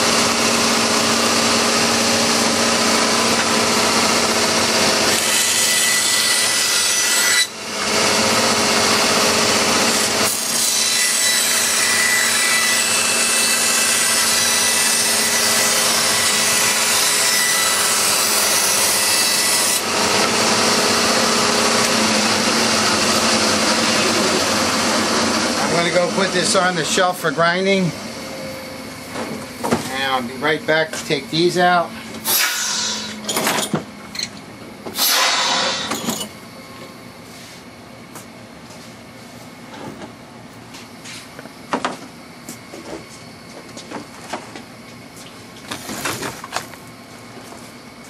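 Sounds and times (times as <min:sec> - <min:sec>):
power tool cutting plastic: 0:00.0 - 0:26.8, 0:32.2 - 0:33.7, 0:35.0 - 0:36.1.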